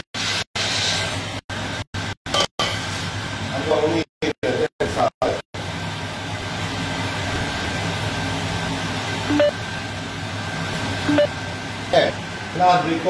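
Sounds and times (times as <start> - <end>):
appliance hum with hiss: 0.0 - 13.0
short beeps: 9.3 - 9.6, 11.1 - 11.4.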